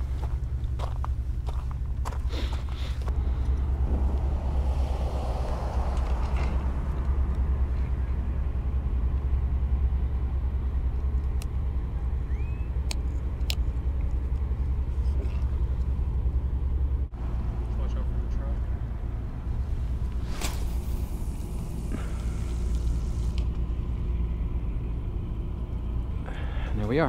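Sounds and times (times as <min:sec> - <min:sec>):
low rumble: 0:00.0 - 0:12.0, 0:18.8 - 0:26.6.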